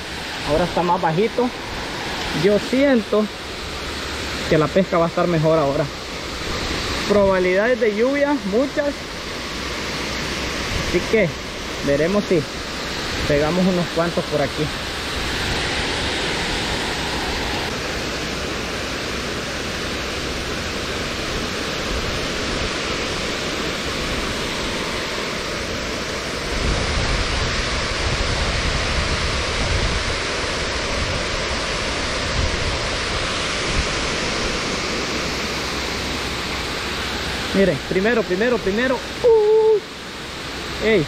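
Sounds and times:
low wind buffeting: 0:00.0 - 0:04.5, 0:05.8 - 0:19.2
wind hiss on microphone: 0:00.0 - 0:41.0.

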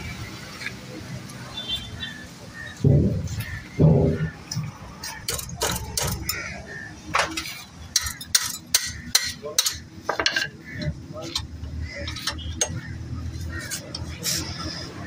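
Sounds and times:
metal tapping on metal: 0:02.8 - 0:06.5, 0:07.1 - 0:12.8.

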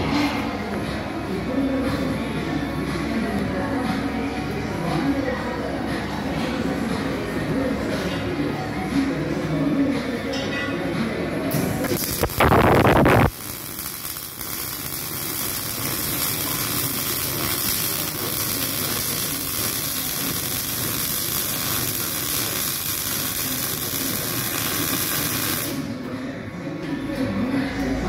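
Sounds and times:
welding arc hissing: 0:11.5 - 0:25.9.

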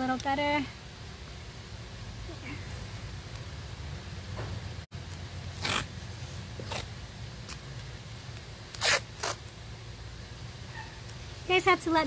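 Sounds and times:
masking tape ripping off roll: 0:05.1 - 0:06.0, 0:06.6 - 0:07.6, 0:08.7 - 0:09.6.

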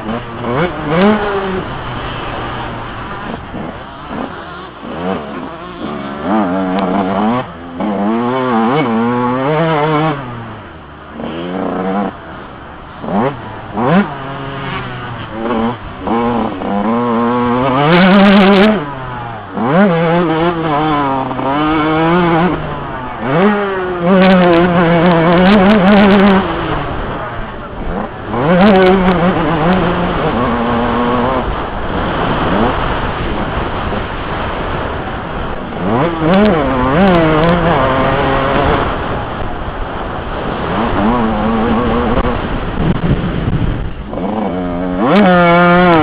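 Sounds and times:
motocross engine revving: 0:00.0 - 0:46.0.

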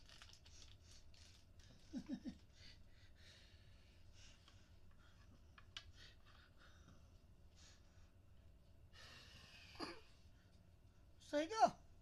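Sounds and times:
faint breathing: 0:02.5 - 0:10.6.

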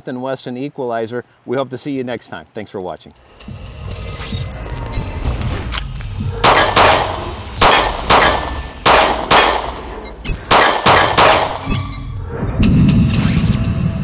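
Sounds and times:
pistol shots ringing: 0:06.4 - 0:11.7.

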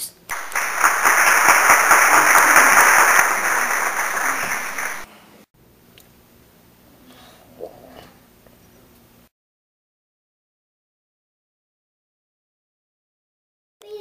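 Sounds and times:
applause: 0:00.3 - 0:05.1.

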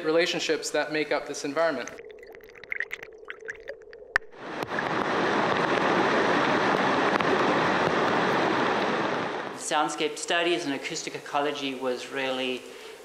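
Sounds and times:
creek water rushing over rocks: 0:04.4 - 0:09.5.

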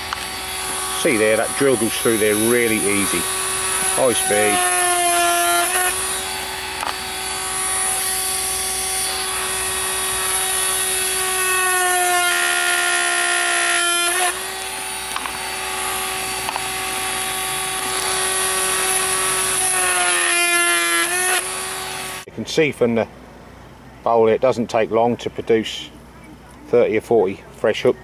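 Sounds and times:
drill bit grinding through pellet: 0:00.0 - 0:22.3
rotary drill whining: 0:00.0 - 0:22.3.

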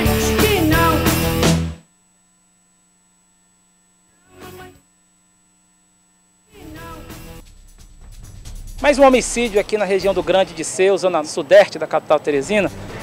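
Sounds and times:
background music: 0:00.0 - 0:01.8, 0:06.6 - 0:10.8, 0:12.4 - 0:13.0.

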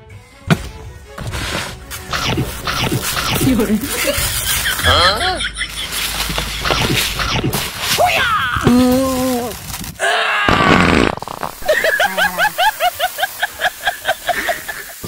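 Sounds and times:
noisy burst: 0:02.1 - 0:08.0, 0:10.5 - 0:15.0.

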